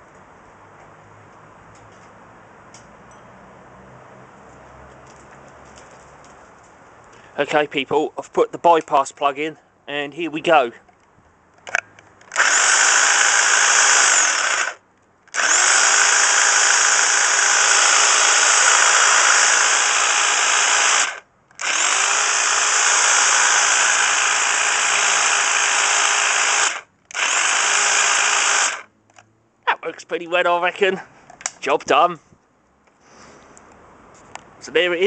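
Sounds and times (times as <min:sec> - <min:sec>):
electric hedge trimmer running: 0:12.3 - 0:28.9.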